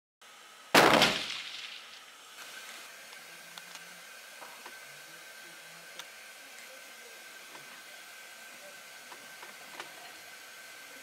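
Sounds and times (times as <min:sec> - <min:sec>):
rifle shot: 0:00.8 - 0:02.0.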